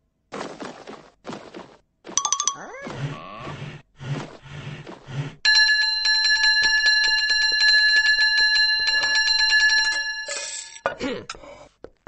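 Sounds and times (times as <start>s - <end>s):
bell ringing rapidly: 2.2s - 2.6s, 5.5s - 10.8s.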